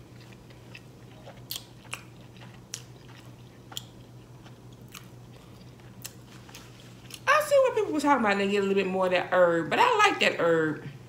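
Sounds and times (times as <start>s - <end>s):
person chewing food: 0.0s - 7.3s
faint low hum: 0.0s - 11.0s.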